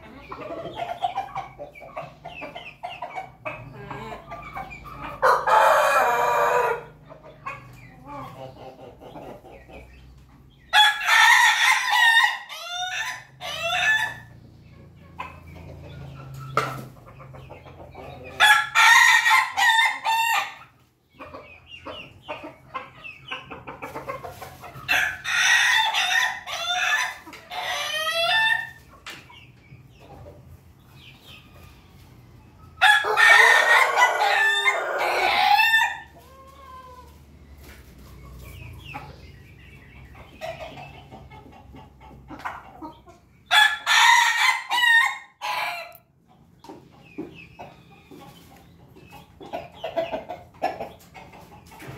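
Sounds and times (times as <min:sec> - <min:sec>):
chickens clucking: 0:00.0 - 0:51.9
roosters crowing: 0:04.7 - 0:07.0, 0:10.7 - 0:14.4, 0:18.1 - 0:20.8, 0:24.8 - 0:28.8, 0:32.8 - 0:37.6, 0:43.5 - 0:46.0.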